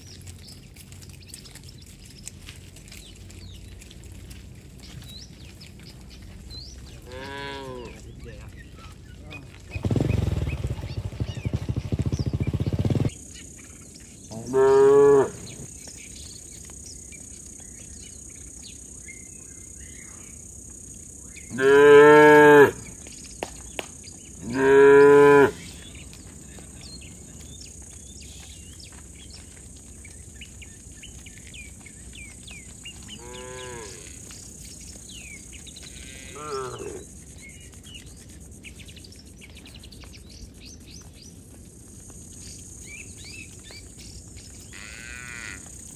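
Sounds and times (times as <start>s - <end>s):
cattle mooing: 7.0s - 8.0s, 14.3s - 15.6s, 21.5s - 22.8s, 24.4s - 25.6s, 33.2s - 34.2s, 35.9s - 37.0s, 44.7s - 45.7s.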